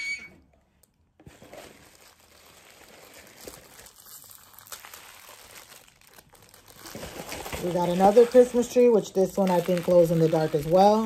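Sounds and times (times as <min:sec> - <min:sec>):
plastic wrappers crinkling: 0:00.8 - 0:11.0.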